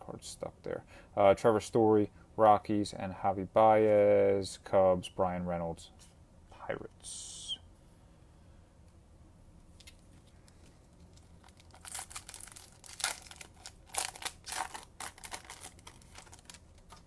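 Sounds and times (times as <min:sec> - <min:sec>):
cards rustling: 0:09.8 - 0:17.0
wrapper crinkling: 0:09.8 - 0:17.0.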